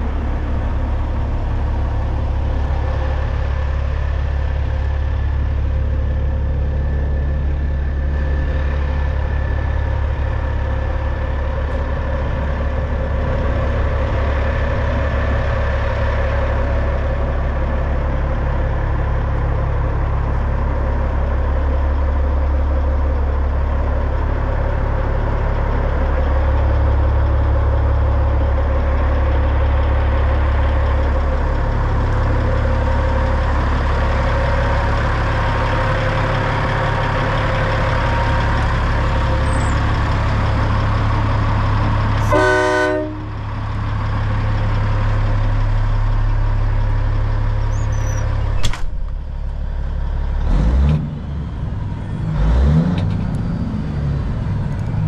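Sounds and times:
diesel truck engine idling: 0.0 - 55.0
truck horn: 42.2 - 43.4.

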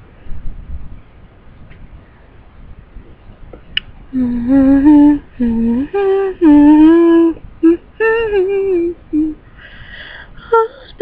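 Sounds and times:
girl singing unaccompanied: 4.2 - 9.4.

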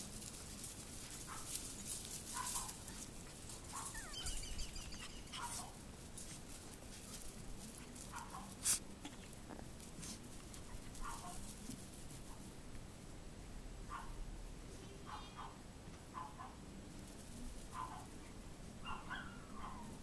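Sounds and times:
light scuffling ticks: 0.0 - 12.8
puppies yipping: 1.0 - 7.0, 18.8 - 19.9.

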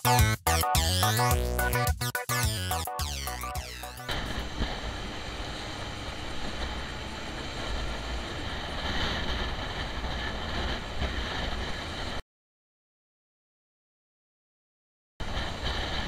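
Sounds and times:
motorcycle engine: 4.1 - 12.0
road rumble: 4.1 - 12.2
wind: 4.1 - 12.2, 15.2 - 16.0.

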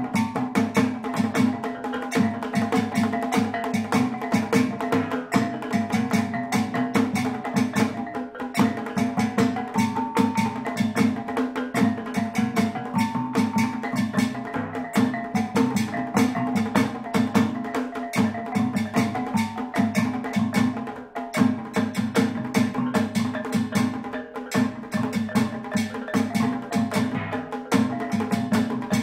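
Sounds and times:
goblet drum rapid beat: 0.0 - 29.0
tuned gongs in melodic runs: 12.8 - 16.6.

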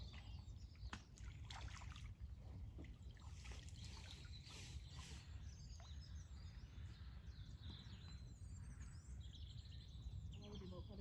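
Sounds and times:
water trickling into lake: 0.0 - 8.4
small birds chirping: 2.4 - 11.0.

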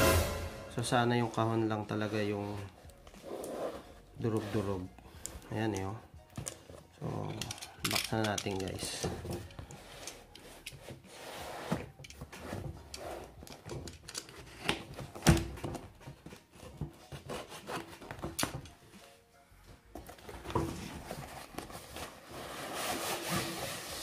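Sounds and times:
cardboard box rustling: 19.9 - 24.0.

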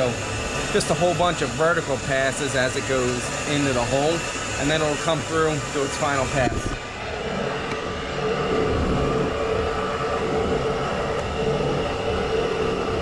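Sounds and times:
constant machine hum: 0.0 - 13.0
coolant spraying: 0.0 - 13.0
lathe machining: 0.0 - 13.0.

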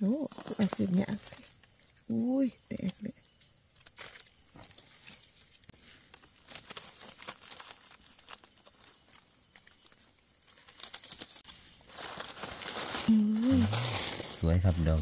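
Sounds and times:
rustling forest floor litter: 3.8 - 15.0.

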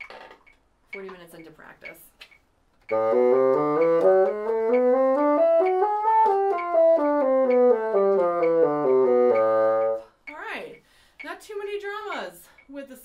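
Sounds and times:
bassoon playing a scale: 2.9 - 10.1.

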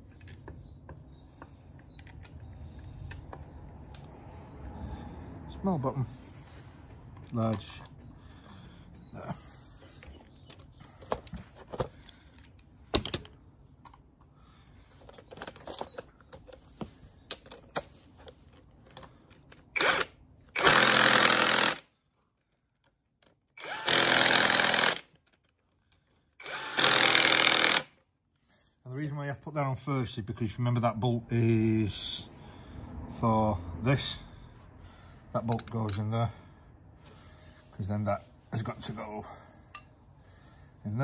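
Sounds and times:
clicks and knocks of tools: 0.1 - 4.1.

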